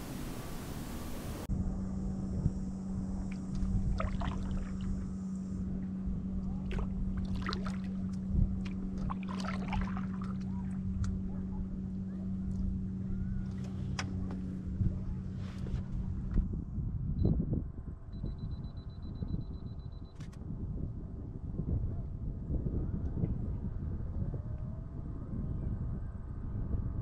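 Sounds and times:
steady low hum: 0.0 - 27.0
paddle splashing and dripping: 3.3 - 5.0, 6.6 - 10.8.

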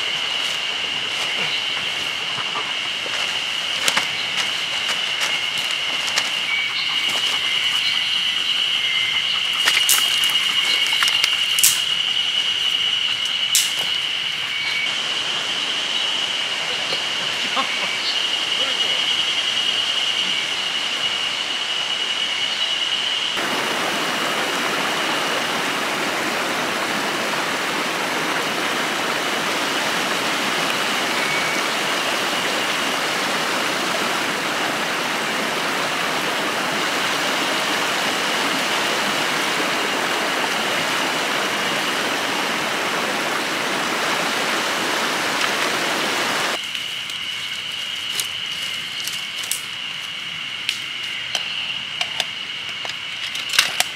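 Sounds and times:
stream water rushing: 0.0 - 19.3, 23.4 - 49.0.

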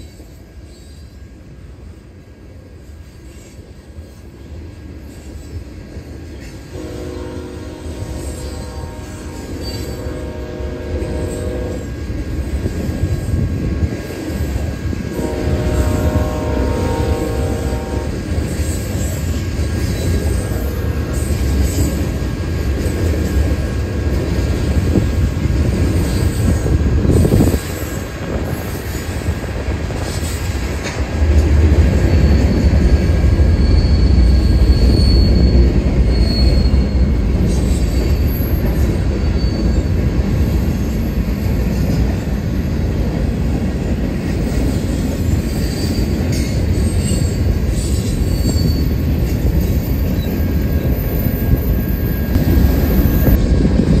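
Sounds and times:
train wheels rumbling on rails: 0.0 - 54.0
high wheel squeals: 32.0 - 41.0, 45.5 - 53.4.

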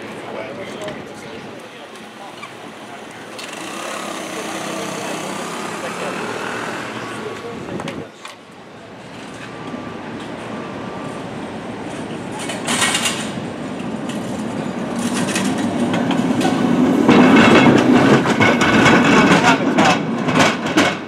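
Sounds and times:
cable car rumbling on rails: 0.0 - 21.0.

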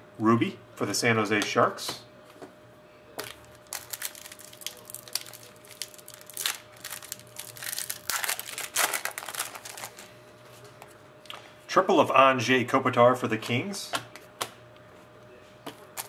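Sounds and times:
foil wrapper crinkling and tearing: 3.2 - 10.1.

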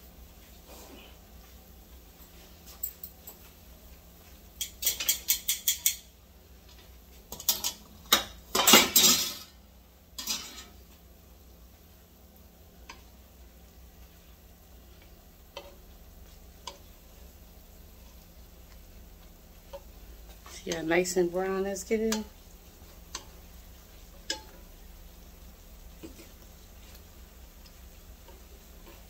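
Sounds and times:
metal tongs and cookware clattering: 4.6 - 6.1, 7.3 - 9.6, 10.2 - 10.8, 24.2 - 24.6.

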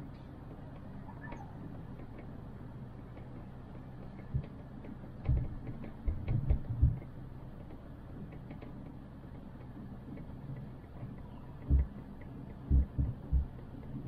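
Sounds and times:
chairlift cable hum: 0.0 - 14.0
faint light ticking: 0.0 - 14.0
dull knocks: 12.7 - 13.5.

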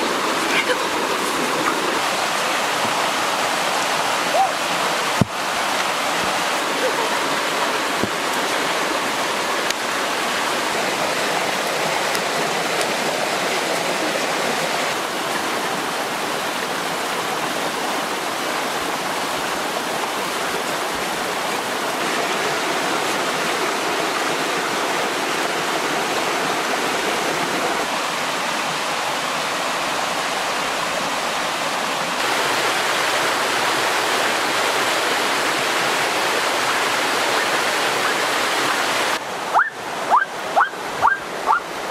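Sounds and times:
stream water rushing over rocks: 0.0 - 41.9.

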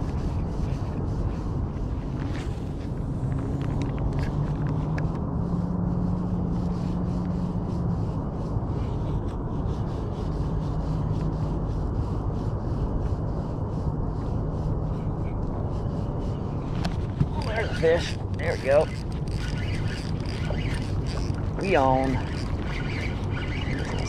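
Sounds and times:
wind rumble on microphone: 0.0 - 24.0
fishing reel ticking whirr: 17.3 - 24.0.

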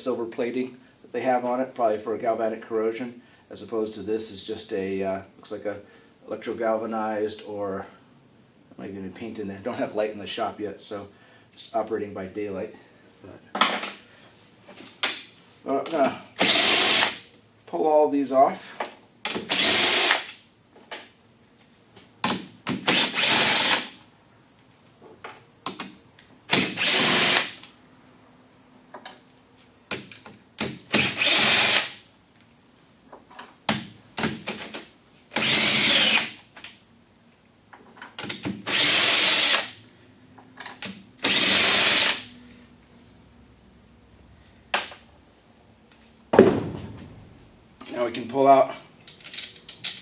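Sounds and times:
cordless drill spinning: 16.4 - 17.2, 19.5 - 20.3, 22.9 - 24.0, 26.5 - 27.6, 31.0 - 32.0, 35.4 - 36.3, 38.6 - 39.8, 41.2 - 42.3.

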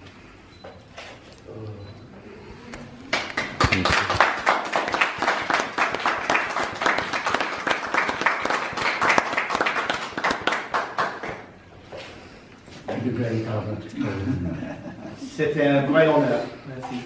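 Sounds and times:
audience applauding: 3.1 - 11.5.

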